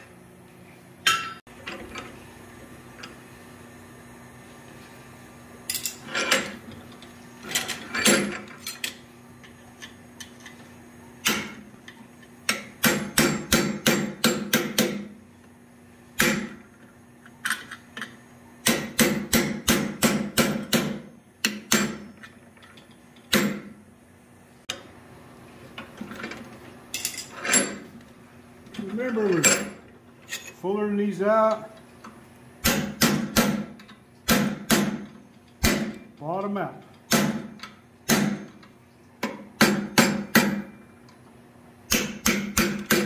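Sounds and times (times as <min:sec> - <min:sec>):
steady low hum: 0:00.0 - 0:43.0
hammer striking hot steel: 0:11.2 - 0:11.6, 0:12.5 - 0:15.1, 0:16.2 - 0:16.6, 0:18.6 - 0:22.1, 0:32.6 - 0:36.1, 0:37.1 - 0:38.6, 0:39.2 - 0:40.8, 0:41.9 - 0:43.0.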